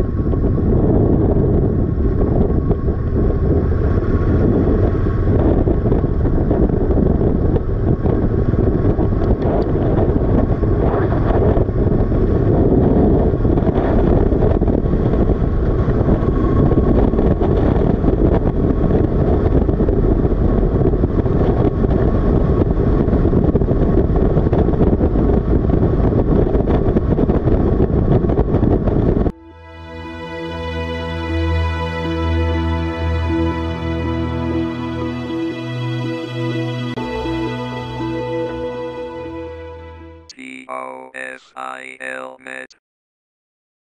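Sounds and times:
wind rush: 0.0 - 29.5.

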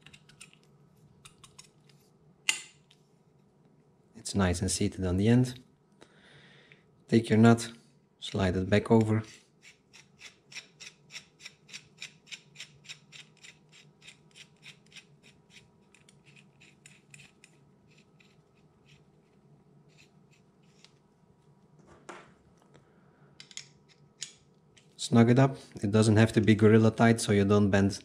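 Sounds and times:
wrench scraping: 9.1 - 21.0.

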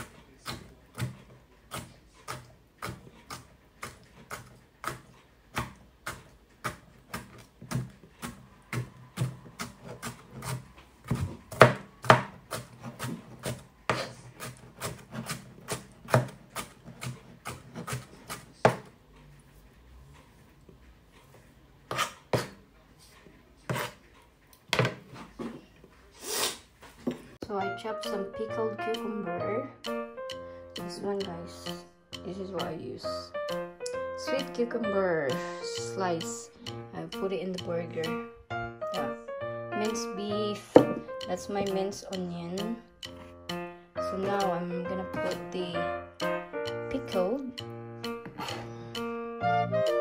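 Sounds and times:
knife chopping on cutting board: 0.0 - 18.9, 21.9 - 22.6, 23.7 - 24.0, 40.7 - 41.0.

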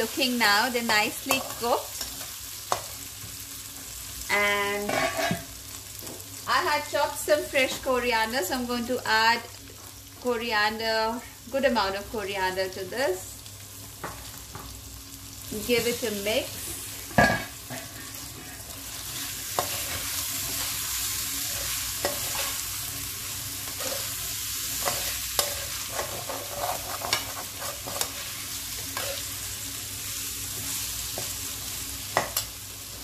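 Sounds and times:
pan sizzling: 0.0 - 33.0
spatula scraping a metal pan: 21.4 - 22.7, 23.7 - 29.3.

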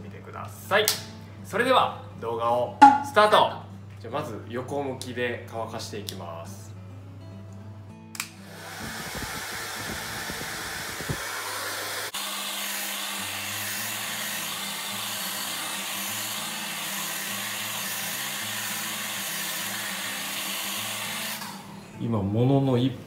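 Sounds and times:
hair dryer blowing: 8.4 - 21.7.

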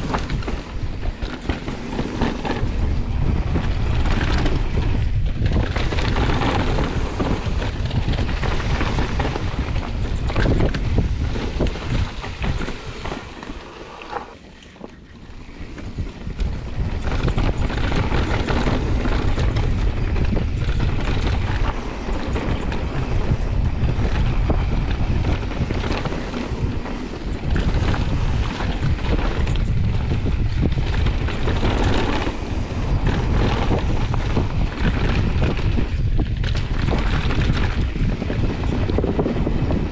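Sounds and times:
bike tyres crunching and rattling: 0.0 - 39.9
wind buffeting microphone: 0.0 - 39.9.

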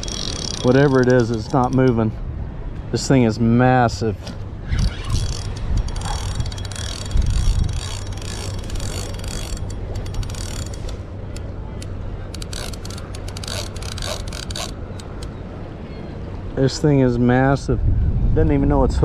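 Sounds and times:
fishing reel drag clicking: 0.0 - 2.0, 4.7 - 11.4, 12.3 - 15.3.

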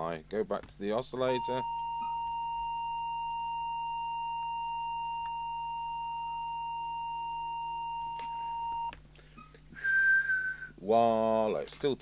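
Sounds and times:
steady test tone: 1.1 - 8.9.

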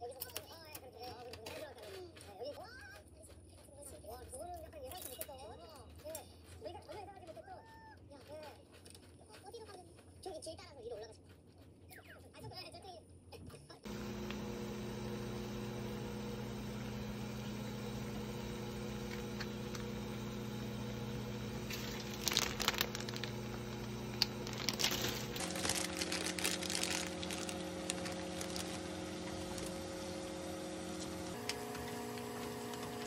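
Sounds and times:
water boiling in a pan: 17.0 - 33.0
plastic packet crinkling: 19.0 - 31.4.

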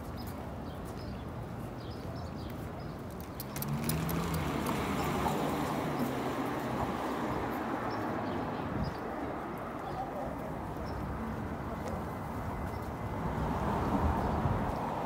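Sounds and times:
faint footsteps on pavement: 0.0 - 15.0
road traffic noise: 0.0 - 15.0
car passing: 3.4 - 15.0.

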